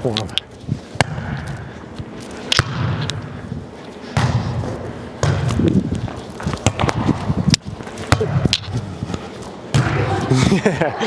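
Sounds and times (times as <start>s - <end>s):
volleyball thudding on arms: 2.5s - 3.2s, 4.1s - 8.8s, 9.7s - 10.2s.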